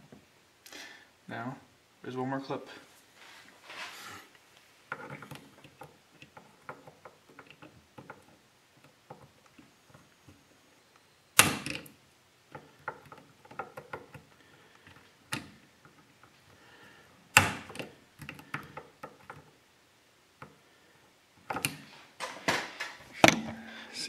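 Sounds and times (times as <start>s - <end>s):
metallic clicks and knocks: 21.4s - 23.6s
sharp metal knocks: 23.2s - 23.7s.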